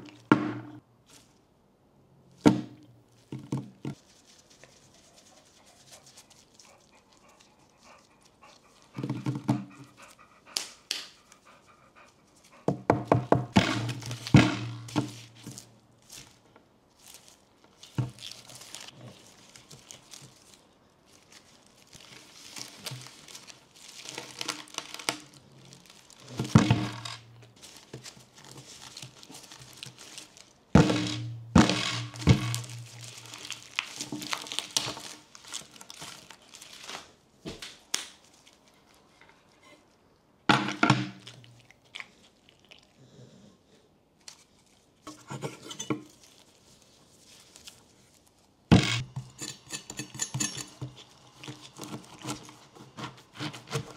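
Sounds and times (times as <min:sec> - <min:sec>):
fruit thudding on table: 0:00.2 - 0:00.8
pineapple leaves rustling: 0:13.8 - 0:37.2, 0:46.1 - 0:48.6.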